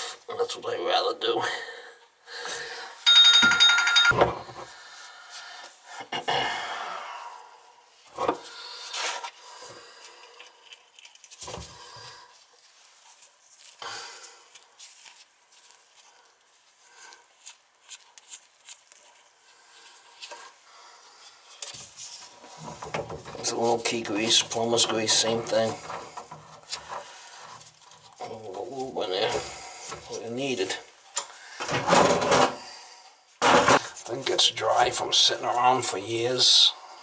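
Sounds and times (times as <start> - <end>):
high trilling ring: 3.1 - 4.2.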